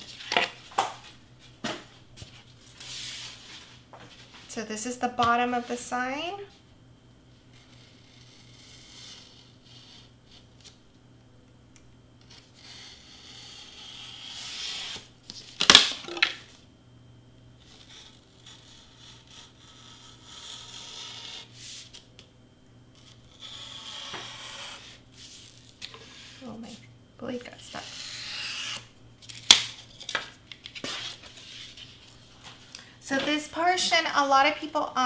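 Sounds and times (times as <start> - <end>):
knife cutting foam board: 12.2 - 15.1, 17.6 - 22.0, 23.0 - 26.6.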